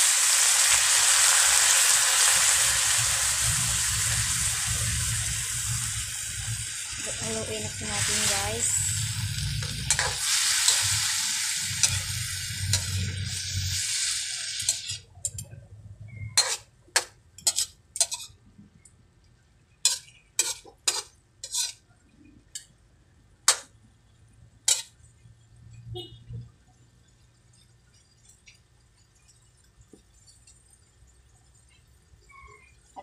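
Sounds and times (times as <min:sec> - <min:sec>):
chicken sizzling in a wok: 0:00.0 - 0:18.4, 0:19.7 - 0:25.8, 0:26.6 - 0:33.0
metal spatula scraping a wok: 0:06.4 - 0:18.4, 0:19.8 - 0:21.9, 0:23.5 - 0:23.7, 0:24.6 - 0:25.0.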